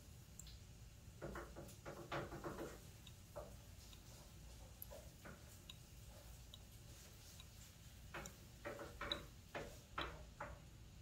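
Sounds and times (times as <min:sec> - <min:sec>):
oil drops ticking into glass: 0:02.7 - 0:04.1, 0:04.8 - 0:10.2.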